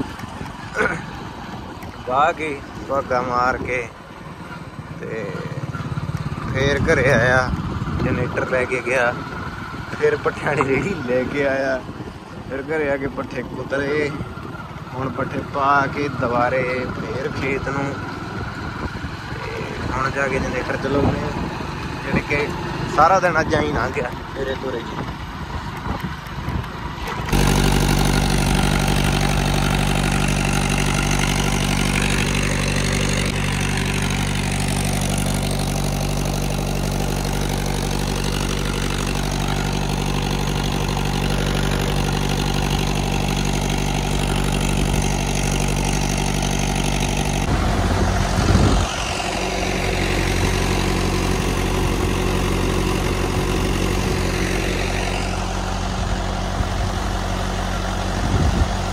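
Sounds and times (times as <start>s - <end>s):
farm engine running: 0.0s - 58.9s
low rumble: 43.7s - 51.1s.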